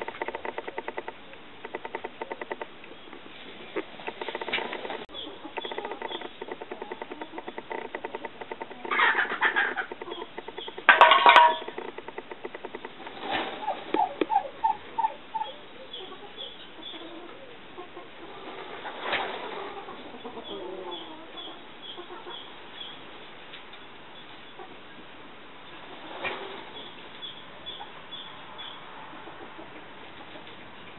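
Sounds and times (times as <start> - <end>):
turkey clucking: 3.8 - 11.9, 13.3 - 23.0
turkey gobbling: 8.2 - 11.8, 13.3 - 22.9.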